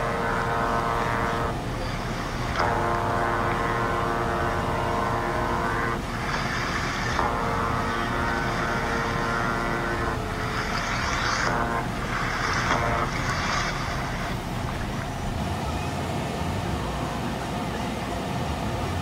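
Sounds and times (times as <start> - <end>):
steady engine drone: 0.0 - 19.0
rushing hiss: 5.6 - 15.5.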